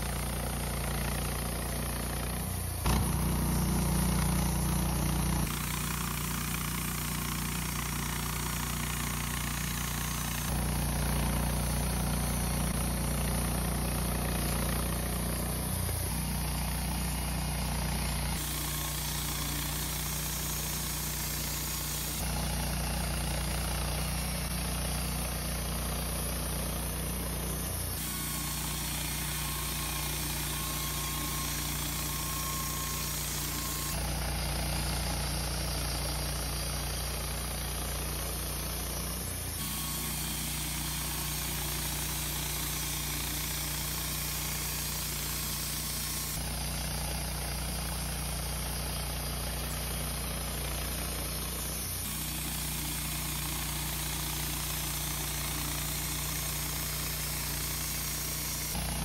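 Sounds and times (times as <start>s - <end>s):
sawmill engine running: 0.0s - 59.0s.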